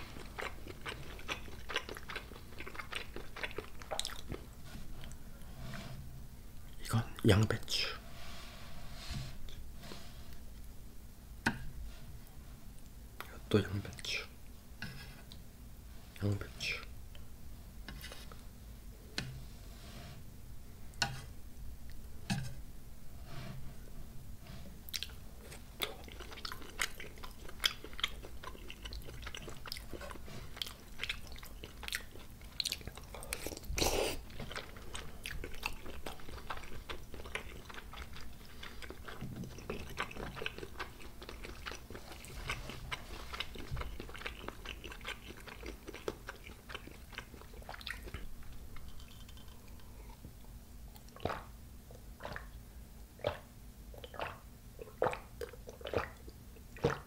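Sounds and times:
wet chewing mouth sounds: 0:00.0 - 0:05.2, 0:24.9 - 0:52.6, 0:53.2 - 0:57.0.

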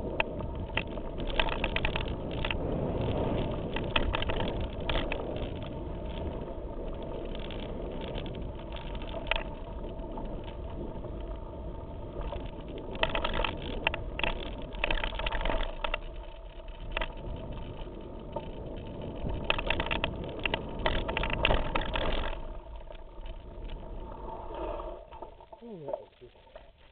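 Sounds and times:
bike rattling: 0:00.0 - 0:24.4
bike tyres rumbling over dirt: 0:00.0 - 0:25.9
sharp clattering over rough ground: 0:00.2 - 0:06.4, 0:12.2 - 0:24.0.

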